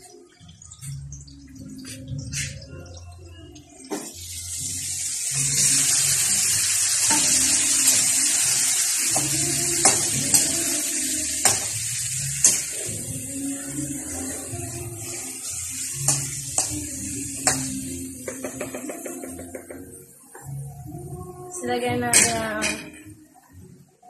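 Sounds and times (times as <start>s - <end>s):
oil sizzling in a wok: 3.9s - 20.8s.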